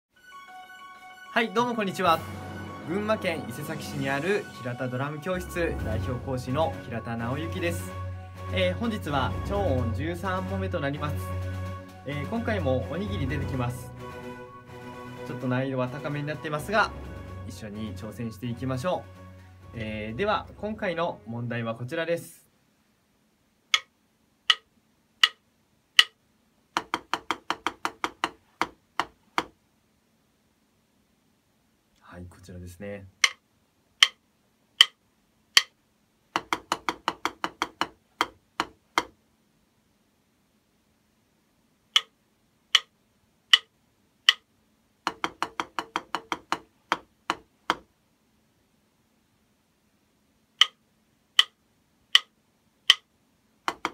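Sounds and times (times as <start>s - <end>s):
drumstick rhythm strokes: 1.3s - 21.4s, 24.5s - 25.4s, 26.0s - 26.2s, 33.2s - 33.4s, 34.8s - 35.0s, 43.5s - 43.7s, 44.3s - 44.5s, 45.1s - 47.9s, 53.7s - 53.9s
drumstick clicks: 23.7s - 23.9s, 24.5s - 25.4s, 26.0s - 26.2s, 33.2s - 33.4s, 34.0s - 34.2s, 34.8s - 35.8s, 42.0s - 42.9s, 43.5s - 43.7s, 44.3s - 44.5s, 50.6s - 50.8s, 51.4s - 53.1s, 53.7s - 53.9s
count-in clicks: 24.5s - 25.4s, 43.5s - 43.7s, 50.6s - 50.8s, 51.4s - 52.3s.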